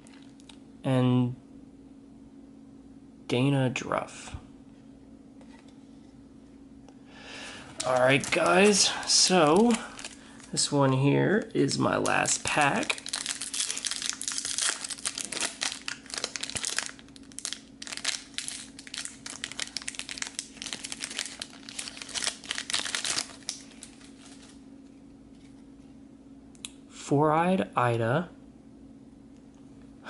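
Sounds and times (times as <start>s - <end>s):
foil wrapper crinkling: 7.6s - 24.6s.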